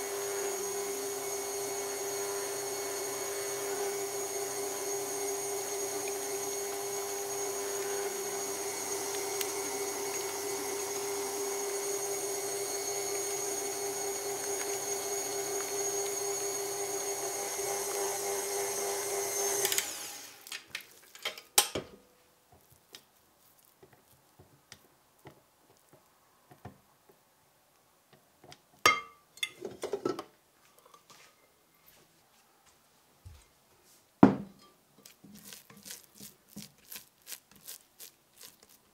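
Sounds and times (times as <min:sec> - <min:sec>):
stand mixer motor whine: 0:00.0 - 0:20.4.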